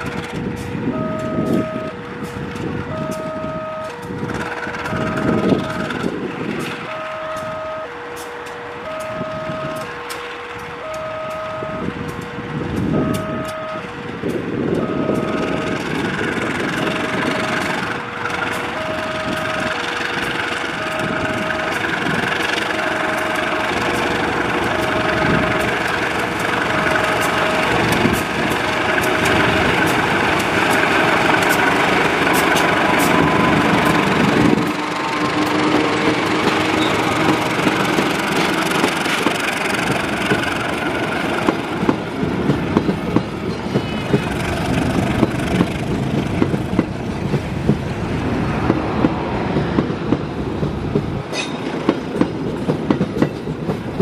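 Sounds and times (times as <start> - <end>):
locomotive engine running: 0.0 - 54.0
two-tone warning signal beeping: 0.9 - 2.0, 2.9 - 4.1, 4.8 - 5.9, 6.8 - 8.0, 8.8 - 9.9, 10.8 - 12.1, 12.8 - 13.9, 14.7 - 15.9, 16.7 - 17.8, 18.7 - 19.8, 20.7 - 31.5, 32.3 - 34.7.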